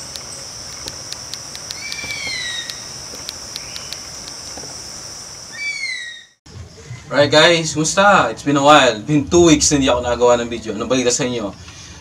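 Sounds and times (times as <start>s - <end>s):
high-pitched insect drone: 0.0s - 7.2s
bird whistled call: 1.8s - 2.9s, 5.5s - 6.4s.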